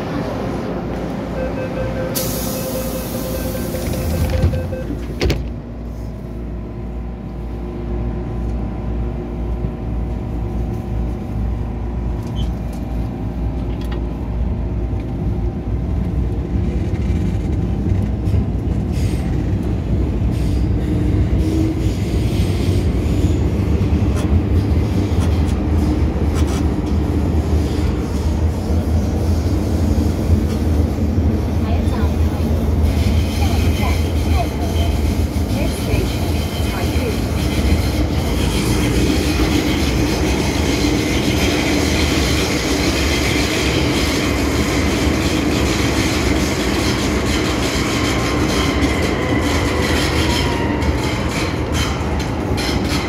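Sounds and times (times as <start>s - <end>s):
train wheels on rails: 0.0s - 53.0s.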